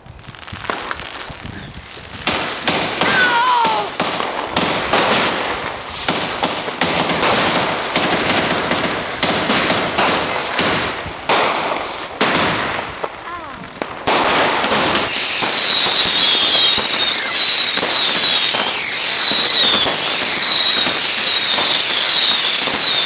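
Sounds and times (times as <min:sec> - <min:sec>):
fireworks cracks and pops: 0:00.0 - 0:23.0
fireworks sparking hiss: 0:00.0 - 0:23.0
falling firework whistle: 0:14.9 - 0:23.0.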